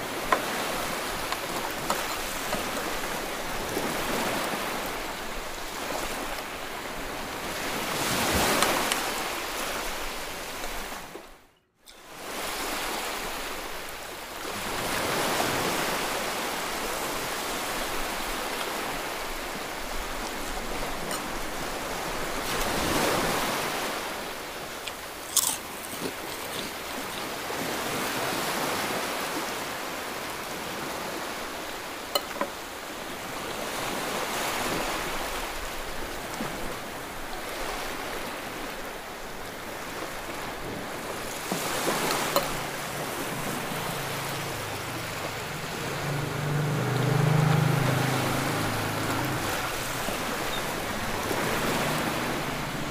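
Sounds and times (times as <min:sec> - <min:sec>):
person chewing food: 0:24.9 - 0:27.3.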